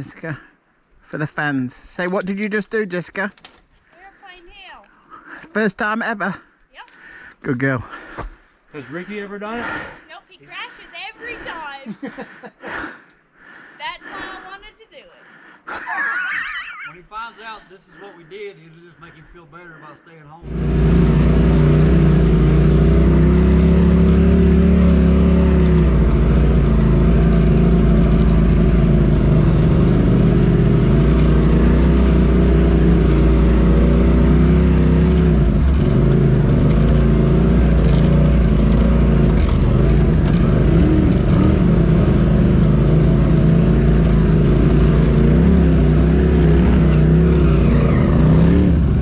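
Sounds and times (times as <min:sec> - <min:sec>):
vehicle engine running: 0:20.4 - 0:49.0.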